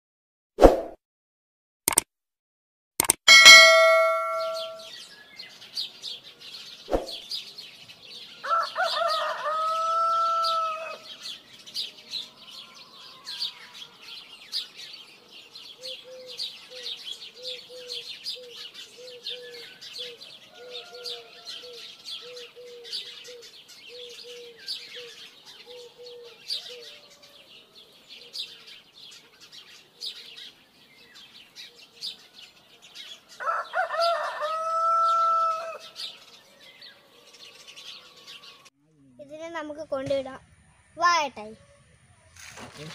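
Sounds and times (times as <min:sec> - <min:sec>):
small birds chirping: 0:03.4 - 0:42.9
rooster crowing: 0:08.4 - 0:11.1, 0:12.2 - 0:14.2, 0:20.4 - 0:22.4, 0:25.8 - 0:27.8, 0:33.4 - 0:36.0.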